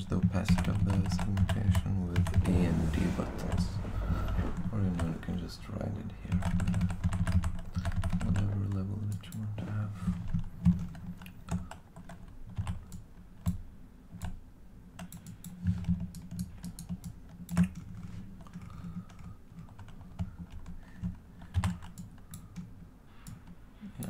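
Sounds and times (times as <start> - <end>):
computer keyboard clicks: 0.2 - 2.5, 6.3 - 9.5, 10.2 - 13.6, 14.2 - 14.4, 15.0 - 23.5.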